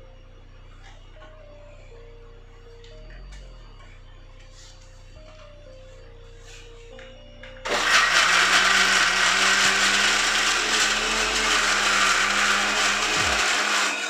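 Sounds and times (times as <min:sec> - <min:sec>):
mixer grinder motor running: 0:07.6 - 0:14.0.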